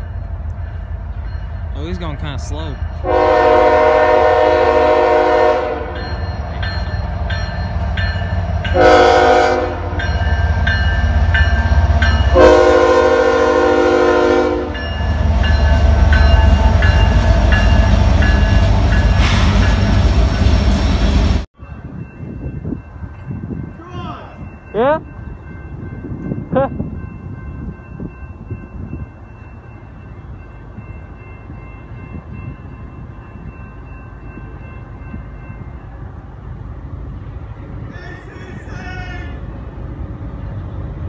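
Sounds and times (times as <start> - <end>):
train rumbling past: 0.0 - 41.0
train air horn blasts: 3.0 - 6.0, 8.7 - 10.0, 12.3 - 14.8.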